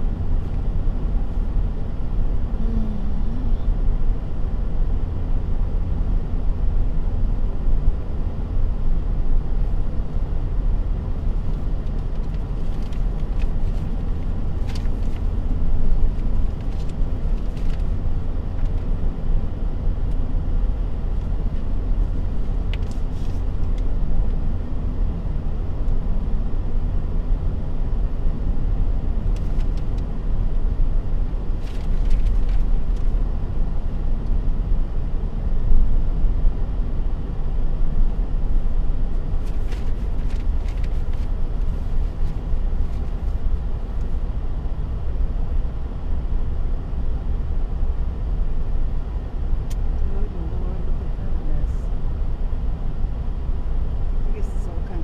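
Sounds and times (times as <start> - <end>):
car driving on highway: 0.0 - 55.0.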